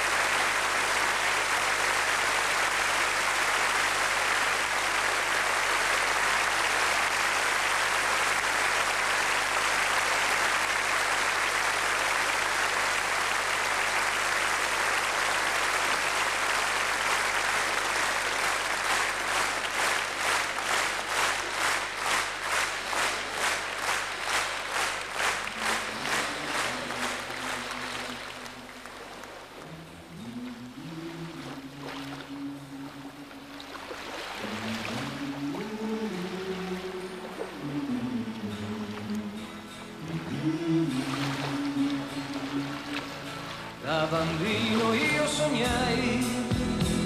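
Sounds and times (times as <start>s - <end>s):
rhythmic clapping in time: 0.0s - 29.0s
audience applauding: 0.0s - 29.6s.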